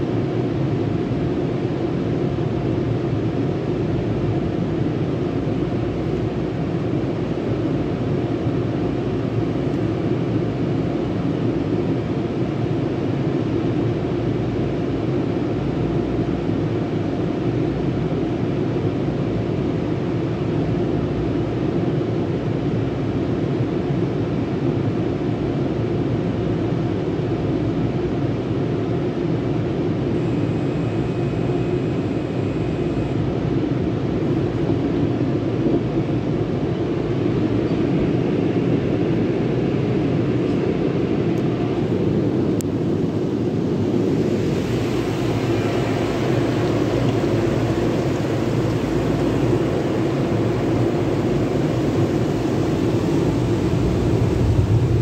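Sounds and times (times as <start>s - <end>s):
car wash machinery roar: 0.0s - 55.0s
water spray hissing on car: 44.2s - 54.8s.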